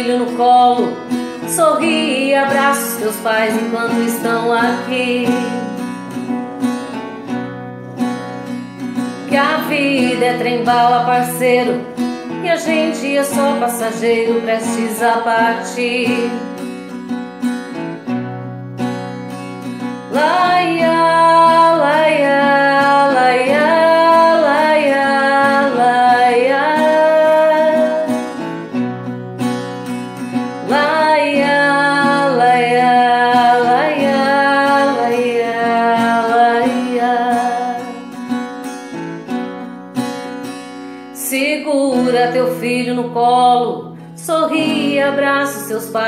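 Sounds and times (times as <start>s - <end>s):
woman singing: 0.0s - 6.3s, 9.1s - 16.8s, 20.1s - 28.4s, 30.6s - 38.2s, 41.2s - 46.0s
strummed acoustic guitar: 0.0s - 46.0s.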